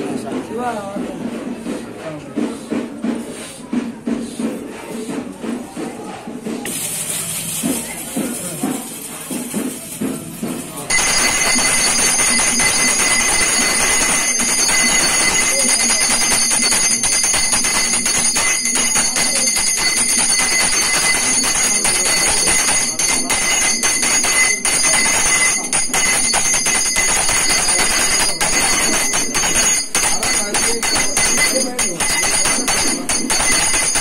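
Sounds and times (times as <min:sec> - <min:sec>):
brass hand bell ringing: 0:10.9 - 0:34.0.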